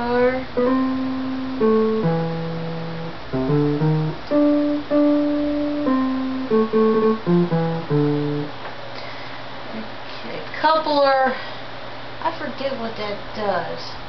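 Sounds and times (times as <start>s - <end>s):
electronic organ guitar-like melody: 0.4s - 8.5s.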